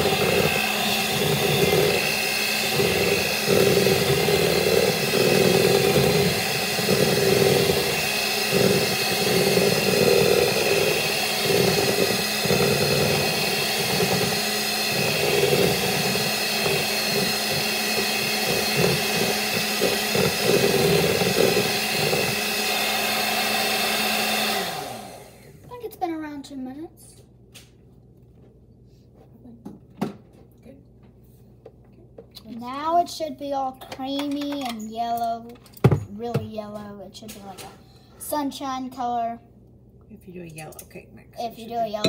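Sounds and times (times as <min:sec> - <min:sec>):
electric hand mixer running: 0:00.0 - 0:25.6.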